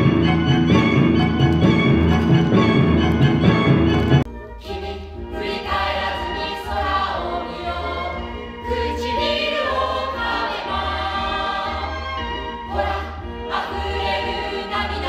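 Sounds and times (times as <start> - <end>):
choir singing in harmony: 4.6 - 15.0.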